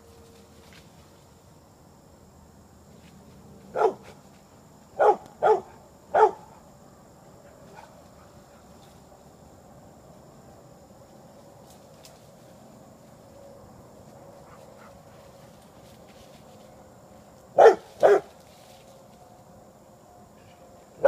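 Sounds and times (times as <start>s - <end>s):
dog barking: 3.7s - 4.2s, 5.0s - 6.5s, 17.6s - 18.3s.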